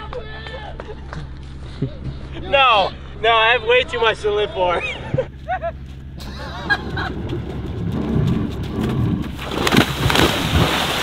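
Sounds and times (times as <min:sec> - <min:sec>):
jet ski engine running: 0:04.8 - 0:10.2
person diving into water: 0:07.0 - 0:11.0.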